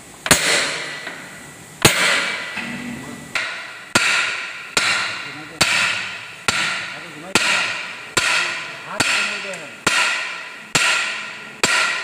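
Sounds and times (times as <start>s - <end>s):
hammer blows on metal: 3.4s - 12.0s.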